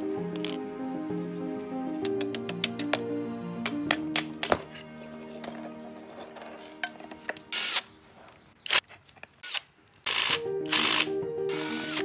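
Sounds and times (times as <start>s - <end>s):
impact wrench bursts: 9.4s - 12.0s
faint background music: 10.1s - 12.0s.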